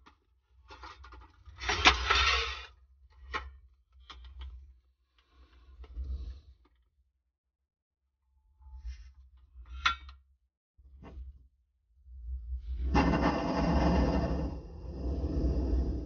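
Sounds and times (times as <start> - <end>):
low rumble: 12.1 - 16.0.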